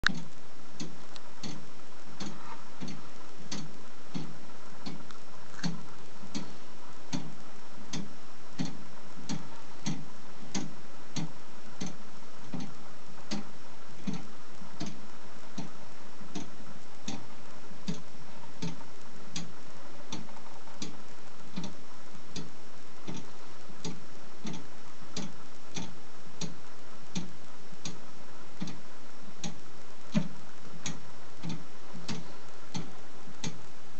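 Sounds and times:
clock ticking: 0.0 - 33.7.

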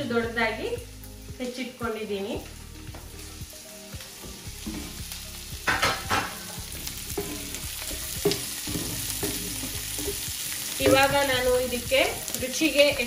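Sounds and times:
vegetables sizzling in a frying pan: 0.0 - 13.0
spatula scraping and knocking on pan: 4.5 - 12.2.

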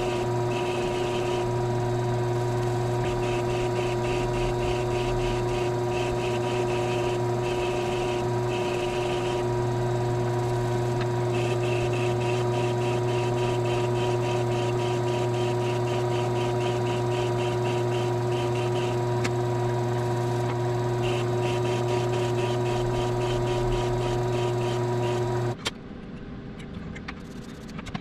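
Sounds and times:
lathe motor hum: 0.0 - 25.6
shaper rasping on leather tip: 3.0 - 9.5, 11.3 - 19.0, 21.0 - 25.3.

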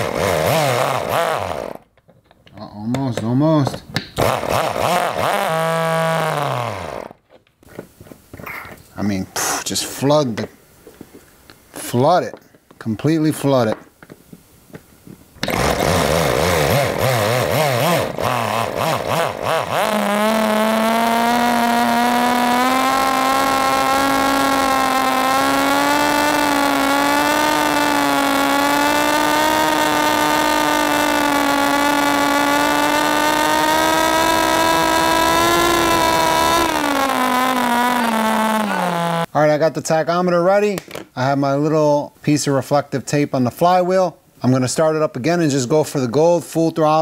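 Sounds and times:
electric starter motor: 0.0 - 1.8, 4.2 - 7.2, 15.4 - 39.3
high-pitched small engine running: 0.0 - 1.8, 4.2 - 7.2, 15.4 - 39.3.

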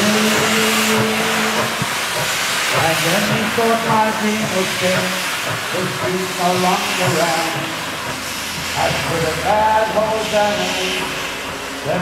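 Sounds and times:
steam locomotive hissing: 0.0 - 12.0.

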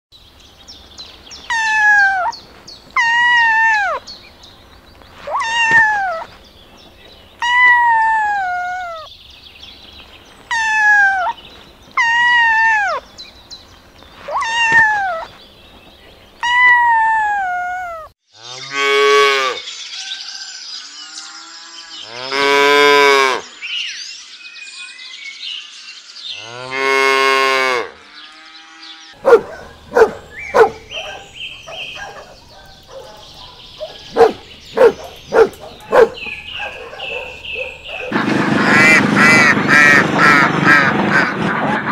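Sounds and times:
kittens meowing: 1.5 - 2.4, 3.0 - 4.0, 5.2 - 6.4, 10.5 - 11.4, 14.2 - 15.3.

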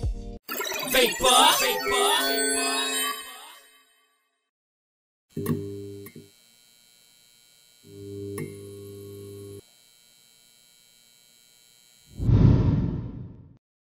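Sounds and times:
neon sign electrical buzz: 5.3 - 12.2.

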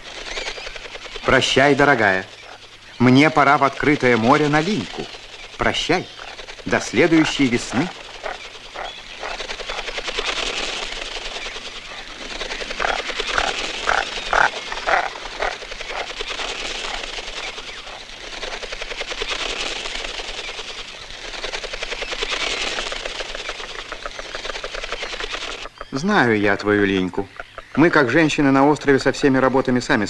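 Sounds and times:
whirring bird wingbeats: 0.0 - 25.8
short bird calls: 0.0 - 28.4.

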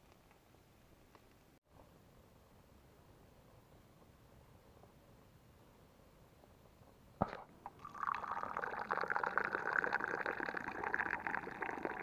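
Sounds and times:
tea pouring into a glass: 7.7 - 12.0.

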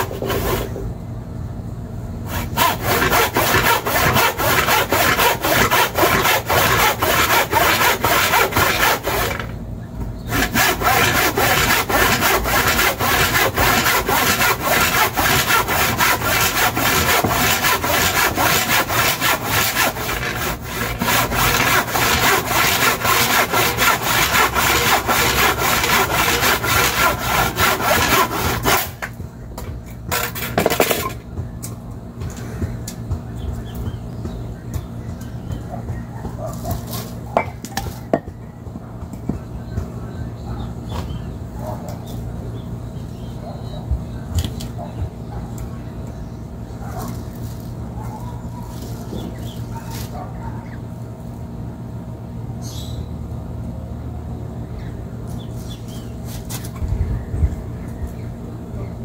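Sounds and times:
handsaw cutting wood: 0.0 - 0.8, 2.3 - 9.6, 10.3 - 29.0.

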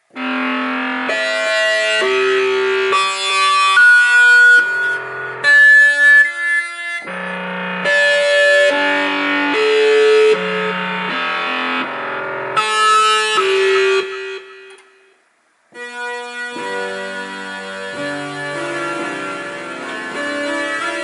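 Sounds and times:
sustained synth chords: 0.1 - 15.1, 15.8 - 21.0.

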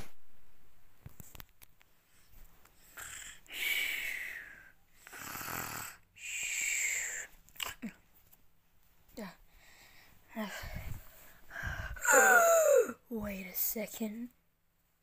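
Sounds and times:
person mock snoring: 2.8 - 7.2.

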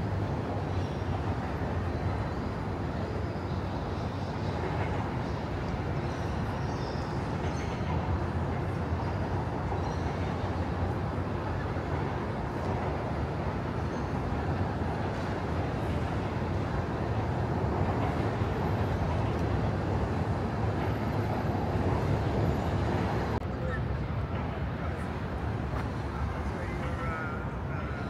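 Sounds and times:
low city rumble: 0.0 - 28.0.

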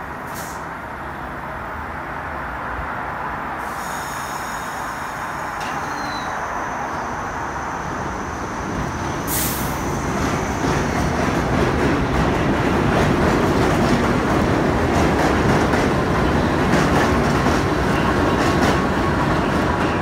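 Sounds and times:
train rumbling on elevated track: 0.0 - 20.0
short hiss: 3.6 - 5.3, 9.3 - 9.8
wheel squeal: 5.6 - 6.4.

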